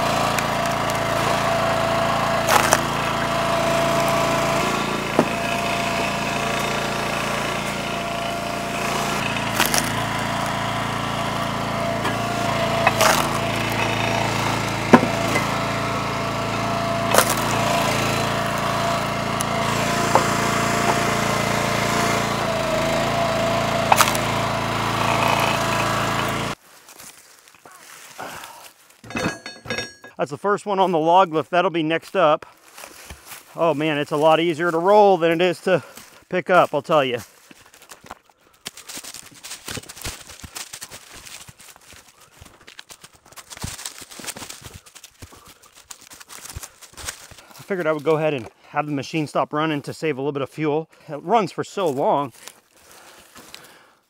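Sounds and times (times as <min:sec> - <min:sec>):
gasoline engine running: 0:00.0 - 0:26.6, 0:28.2 - 0:30.2
hydraulic whine: 0:00.0 - 0:26.6
wood cracking and knocking: 0:02.4 - 0:02.9, 0:05.1 - 0:05.6, 0:09.2 - 0:10.0, 0:12.8 - 0:14.0, 0:14.8 - 0:15.4, 0:17.1 - 0:18.6, 0:20.0 - 0:21.1, 0:23.9 - 0:24.3.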